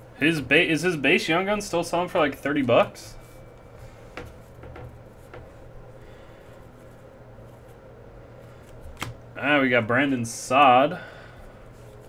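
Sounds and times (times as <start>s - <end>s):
cards clicking: 8.6s - 9.2s.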